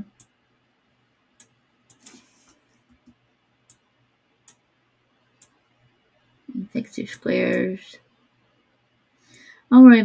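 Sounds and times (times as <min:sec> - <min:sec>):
computer mouse clicks: 0:00.1 - 0:00.4, 0:01.4 - 0:04.6, 0:05.4 - 0:05.6.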